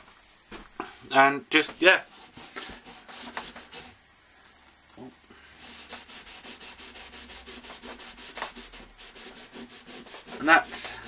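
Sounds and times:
cleaning block rubbing on rails: 0:01.6 - 0:04.0, 0:05.6 - 0:11.0.

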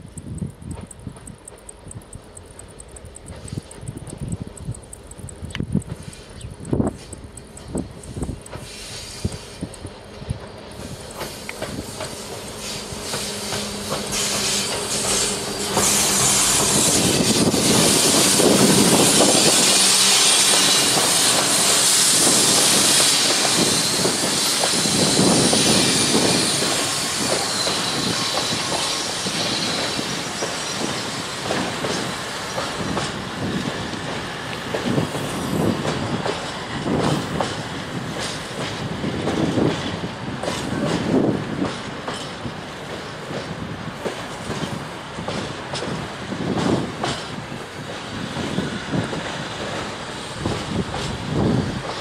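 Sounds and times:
train rolling rumble: 0:00.0 - 0:52.0
loud high hiss: 0:08.0 - 0:39.1.

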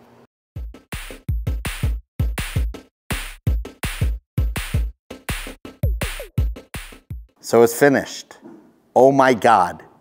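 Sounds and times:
electronic music with drum-machine beat: 0:00.6 - 0:07.4.

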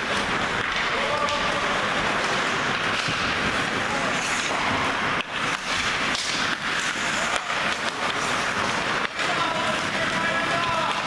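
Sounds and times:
indistinct voices and shouting: 0:09.1 - 0:11.0.

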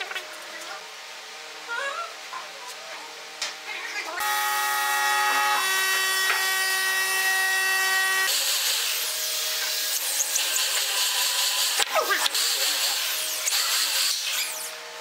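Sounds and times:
electric drill boring into wood: 0:04.2 - 0:14.7
power tool motor whine: 0:04.2 - 0:14.8.

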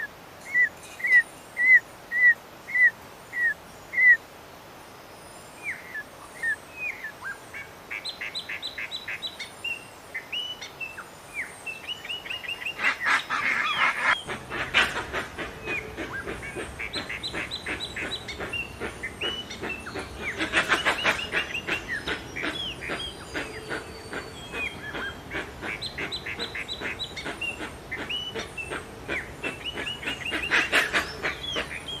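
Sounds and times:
birds chirping: 0:00.0 - 0:04.2, 0:04.9 - 0:32.0.

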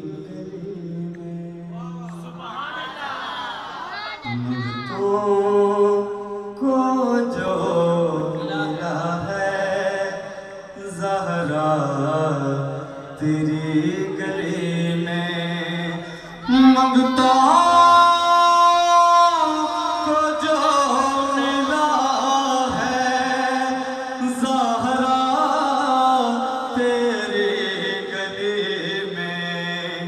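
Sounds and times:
man singing into a microphone: 0:00.0 - 0:02.8, 0:04.2 - 0:30.0.

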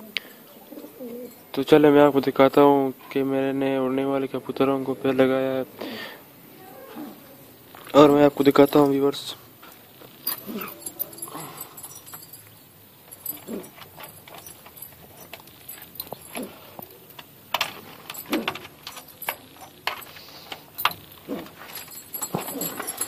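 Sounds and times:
wire cage clinking and rattling: 0:07.9 - 0:23.0.

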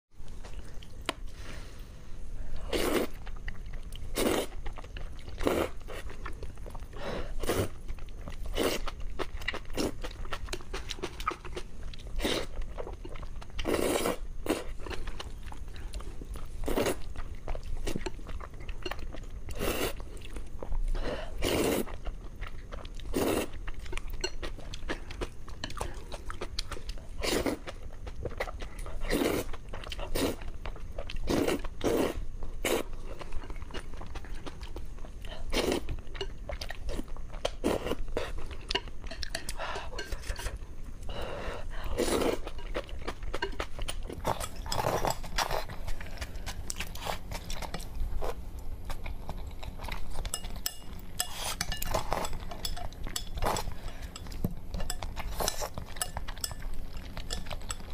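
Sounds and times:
person chewing: 0:02.5 - 0:57.9
person slurping noodles: 0:02.7 - 0:03.2, 0:04.1 - 0:04.6, 0:13.7 - 0:14.6, 0:21.3 - 0:21.9.

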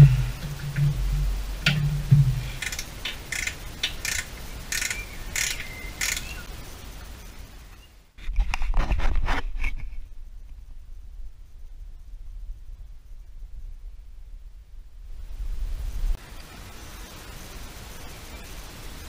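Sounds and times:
low rumble: 0:00.0 - 0:02.6, 0:10.0 - 0:16.2
low hum: 0:00.0 - 0:03.1.

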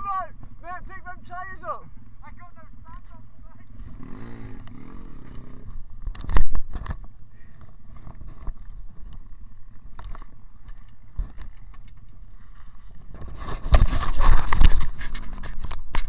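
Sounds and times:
bike scraping: 0:03.0 - 0:16.0.

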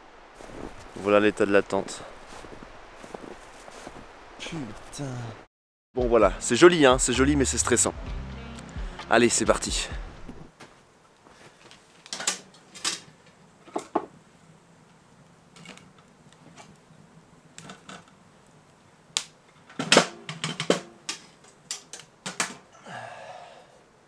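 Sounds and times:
short rustle: 0:02.0 - 0:05.0
kindling clicks and wooden knocks: 0:19.2 - 0:22.7.

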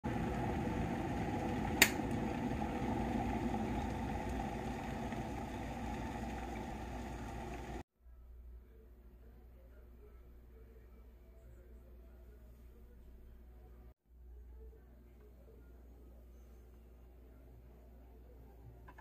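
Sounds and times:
electric kettle bubbling: 0:00.0 - 0:07.8
kettle switch click: 0:01.8 - 0:02.1.

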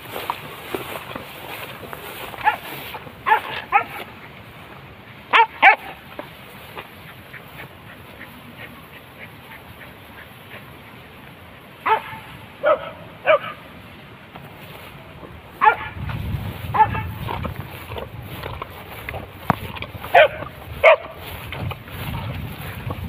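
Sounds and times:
dogs barking: 0:02.3 - 0:04.2, 0:05.3 - 0:06.0, 0:11.8 - 0:13.7, 0:15.6 - 0:18.0, 0:19.5 - 0:21.4
low rumbling noise: 0:15.0 - 0:23.0.

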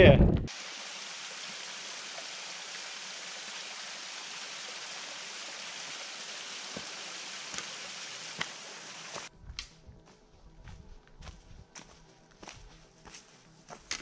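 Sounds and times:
running water rushing: 0:00.5 - 0:09.3.

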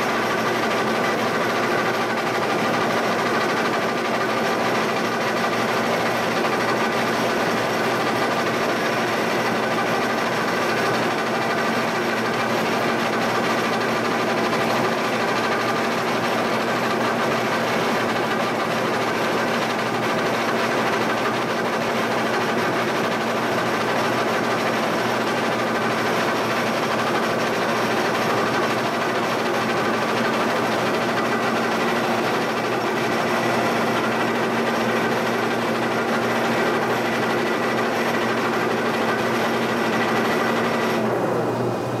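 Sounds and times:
milling machine whirring: 0:00.0 - 0:42.0.

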